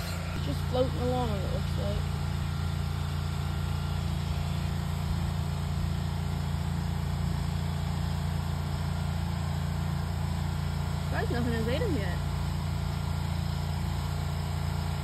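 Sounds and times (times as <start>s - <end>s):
motor idling hum: 0.0s - 15.0s.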